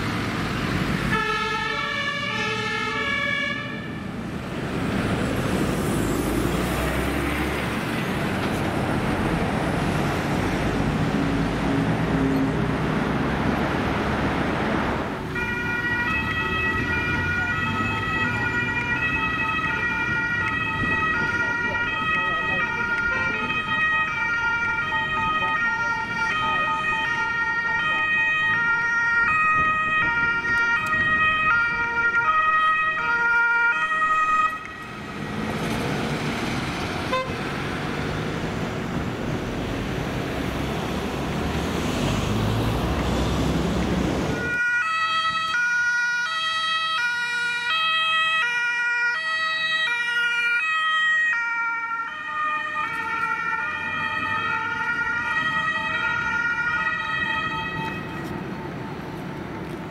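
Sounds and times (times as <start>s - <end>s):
traffic driving past: 0.0s - 59.9s
two-tone emergency siren: 1.0s - 4.1s, 15.3s - 35.3s, 44.3s - 59.0s.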